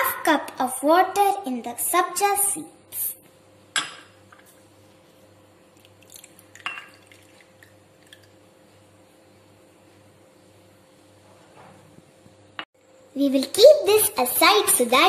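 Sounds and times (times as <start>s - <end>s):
water trickling and dripping: 5.8s - 8.4s.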